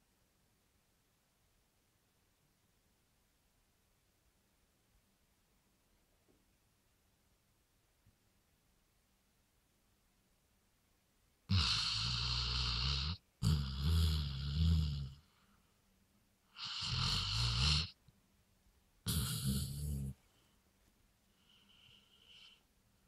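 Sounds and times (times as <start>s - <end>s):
dog snoring loudly: 11.5s - 15.2s, 16.5s - 18.0s, 19.1s - 20.2s.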